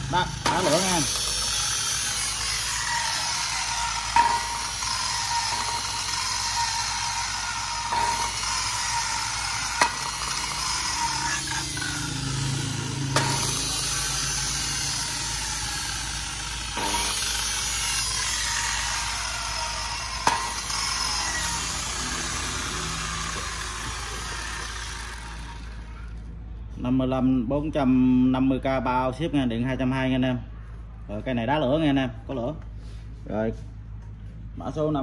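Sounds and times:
circular saw running: 0:00.0 - 0:26.3.

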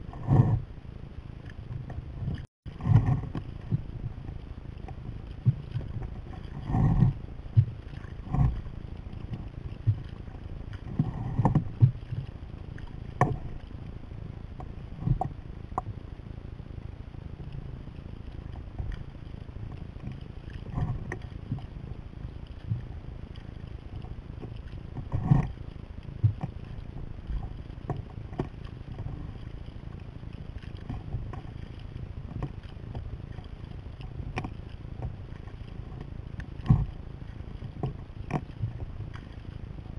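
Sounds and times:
rushing water: 0:00.0 - 0:39.9
water slapping hull: 0:00.0 - 0:39.9
paddle splashes and knocks: 0:01.7 - 0:13.8.

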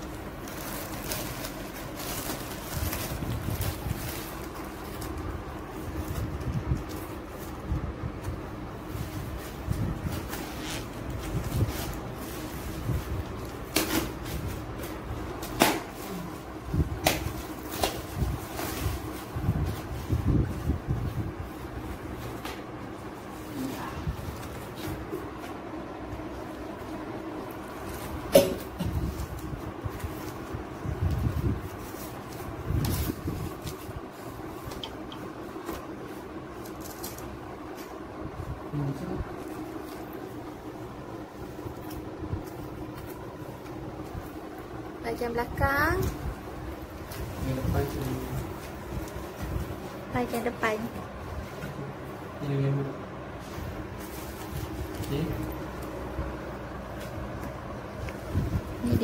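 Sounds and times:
plastic packaging crackles: 0:00.0 - 0:25.4
steady low hum: 0:00.0 - 0:59.0
cardboard rustling and scraping: 0:00.1 - 0:28.3, 0:53.2 - 0:59.0.

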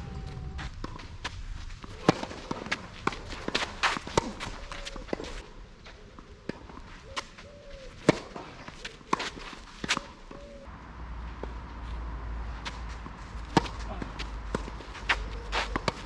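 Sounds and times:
tennis ball struck by rackets: 0:12.6 - 0:16.0.

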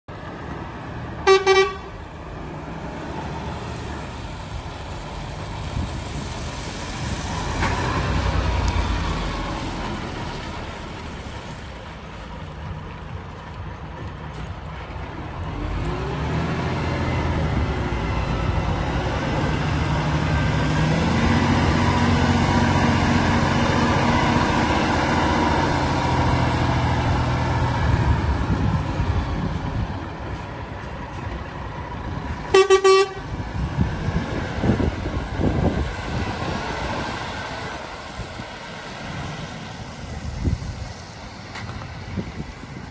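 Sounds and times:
diesel truck engine running: 0:00.1 - 0:42.9
loud truck horn toot: 0:01.2 - 0:02.0, 0:32.5 - 0:33.4.

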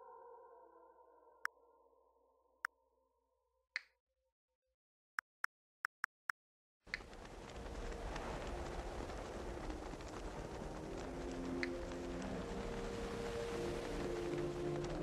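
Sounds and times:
soft music: 0:10.8 - 0:15.0.

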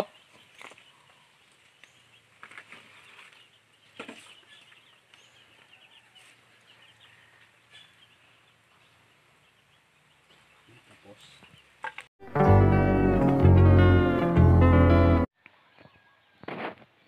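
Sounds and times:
rustles: 0:00.2 - 0:12.1.

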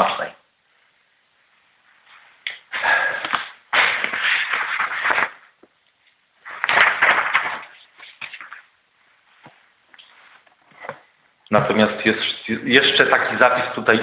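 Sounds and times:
rustling handling noise on microphone: 0:00.7 - 0:11.2.

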